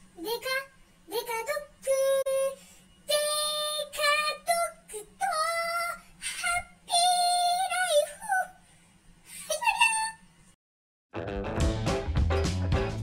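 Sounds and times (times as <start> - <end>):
high-pitched voice singing: 0.2 - 8.6.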